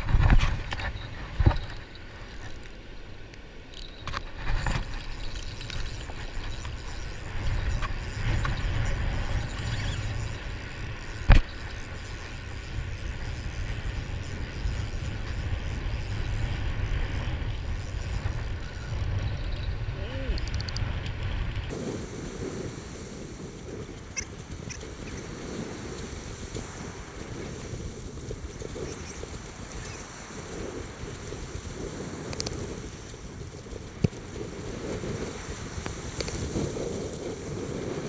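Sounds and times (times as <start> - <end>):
wind buffeting microphone: 3.8 - 38.0
breaking surf: 21.7 - 28.8.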